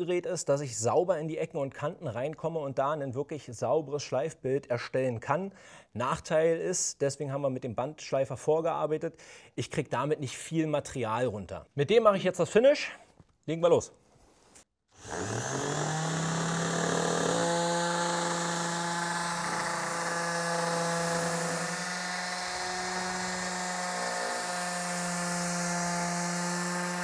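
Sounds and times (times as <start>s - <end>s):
orbital sander on wood: 15.0s - 27.0s.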